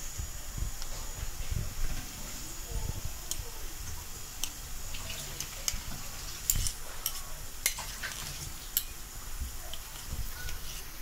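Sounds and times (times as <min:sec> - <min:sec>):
onions sizzling in a frying pan: 0:02.3 - 0:11.0
utensil scraping a pan: 0:09.9 - 0:11.0.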